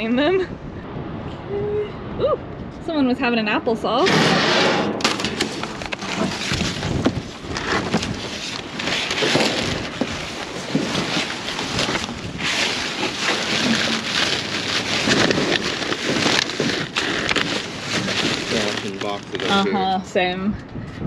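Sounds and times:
cardboard and plastic bags rustling: 0:04.1 - 0:20.0.

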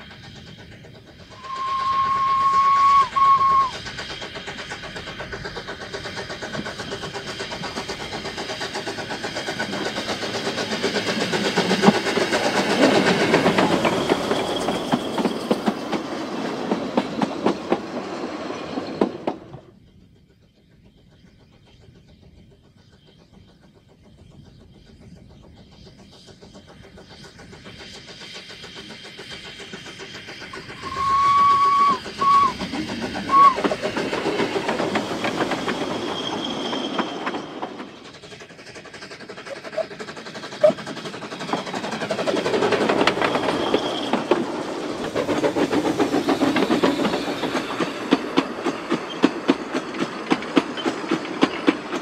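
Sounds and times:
distant train rumble: 0:00.0 - 0:52.0
steam locomotive whistle: 0:01.4 - 0:04.0, 0:30.5 - 0:33.8
train wheels clattering over rail joints: 0:03.8 - 0:19.7, 0:26.0 - 0:52.0.

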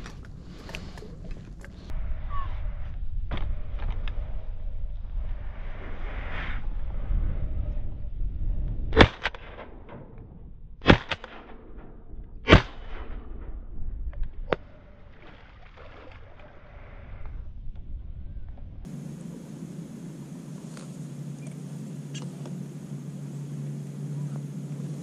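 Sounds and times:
wind rumble on microphone: 0:00.0 - 0:25.0
shotgun shots: 0:09.0 - 0:09.8, 0:10.8 - 0:13.5.

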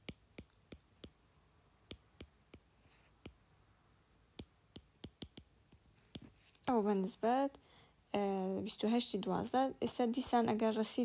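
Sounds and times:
stylus tapping on glass screen: 0:00.0 - 0:01.2, 0:01.9 - 0:03.4, 0:04.4 - 0:05.5.

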